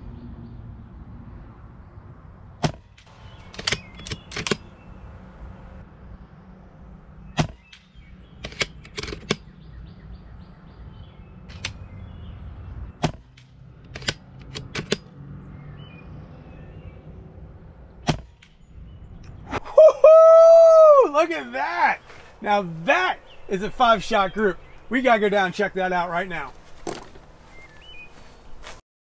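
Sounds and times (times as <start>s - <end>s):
rifle action clicks: 3.4s - 4.7s.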